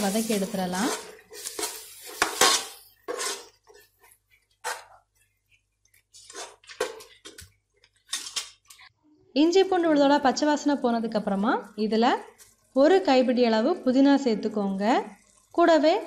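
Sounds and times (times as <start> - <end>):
metal spoon scraping a pot: 0.8 - 5.0.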